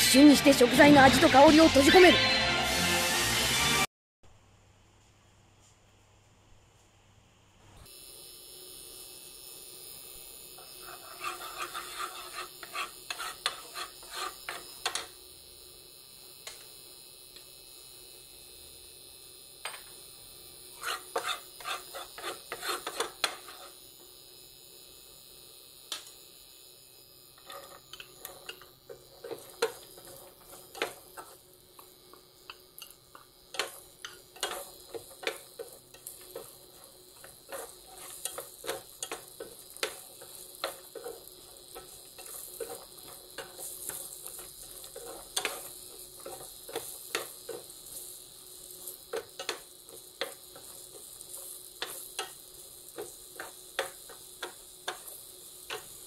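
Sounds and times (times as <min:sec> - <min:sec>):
pumpkin sizzling in oil: 0:07.8 - 0:56.0
spatula scraping a pan: 0:10.6 - 0:15.1, 0:20.7 - 0:23.8, 0:27.4 - 0:31.5, 0:32.5 - 0:56.0.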